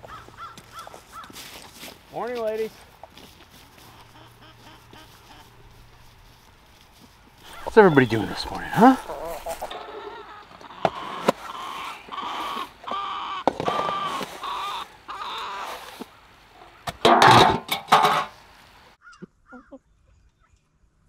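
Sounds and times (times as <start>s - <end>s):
hens clucking: 2.9s - 18.3s
poultry squawking: 3.7s - 6.4s, 7.4s - 16.9s.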